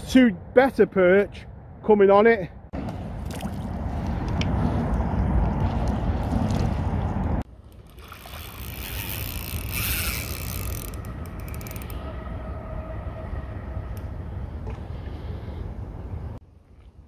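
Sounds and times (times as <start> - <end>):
spinning reel being wound: 7.9 - 12.0
loud low rumble: 10.4 - 16.4.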